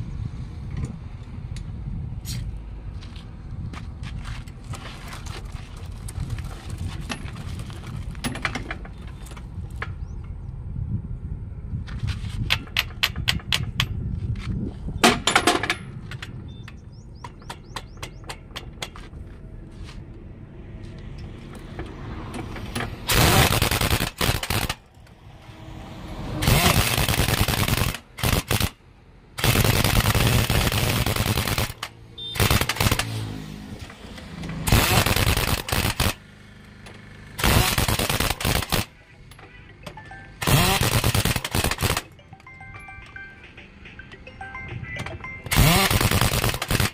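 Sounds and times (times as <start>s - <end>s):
pneumatic impact wrench bursts: 22.4s - 24.9s, 26.4s - 28.8s, 29.4s - 36.3s, 37.3s - 39.0s, 40.4s - 42.1s, 45.5s - 46.9s
sharp clicks: 29.4s - 33.1s.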